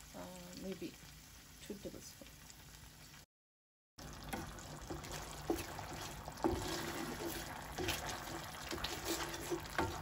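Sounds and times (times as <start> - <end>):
thick sauce stirred squelching: 4.3 - 10.0.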